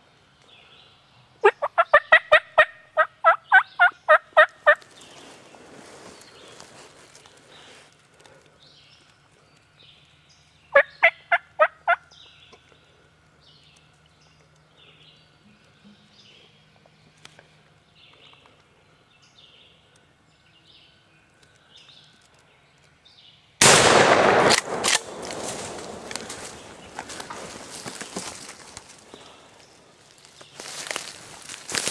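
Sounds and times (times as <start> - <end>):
turkey gobbling: 1.4 - 4.8, 10.7 - 12.0
small birds chirping: 3.4 - 23.6, 25.8 - 31.9
shotgun blast echoing: 23.6 - 26.8.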